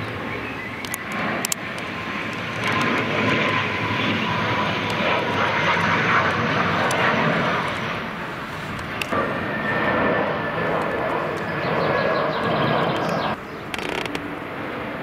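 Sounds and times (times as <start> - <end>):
propeller plane engine drone: 0.0 - 15.0
sharp clicks: 0.8 - 1.9, 12.4 - 14.3.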